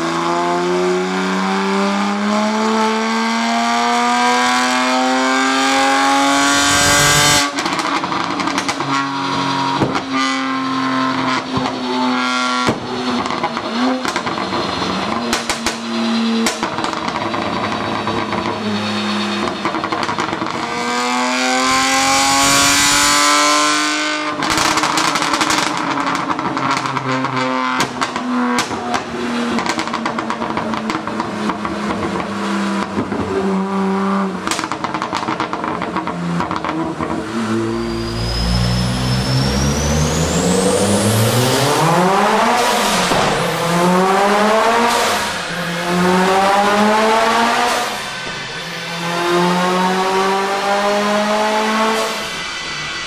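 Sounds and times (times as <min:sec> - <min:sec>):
car engine revving on dyno: 0:00.0 - 0:53.0
high turbo whine: 0:00.0 - 0:53.0
turbocharged engine pulling: 0:00.0 - 0:53.0
exhaust crackles and pops: 0:07.5 - 0:09.0, 0:12.6 - 0:15.8, 0:16.4 - 0:18.6, 0:19.4 - 0:20.8, 0:24.3 - 0:33.4, 0:34.4 - 0:37.2.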